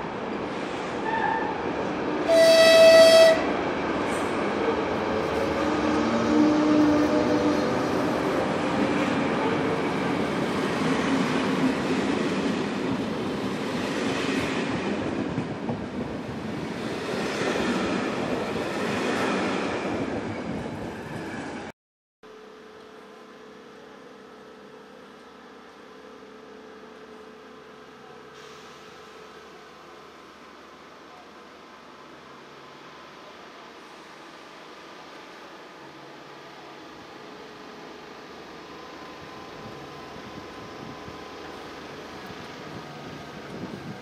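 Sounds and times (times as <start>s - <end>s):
train wheels rumbling on rails: 0.2s - 21.7s, 39.0s - 44.0s
locomotive horn blast: 2.2s - 3.5s.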